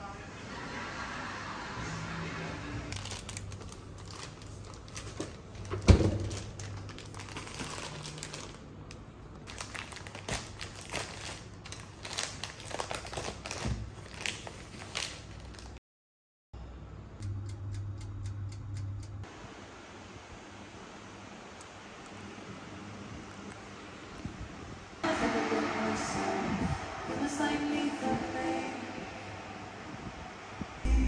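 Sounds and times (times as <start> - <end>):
plastic packaging crinkling: 2.9 - 15.8.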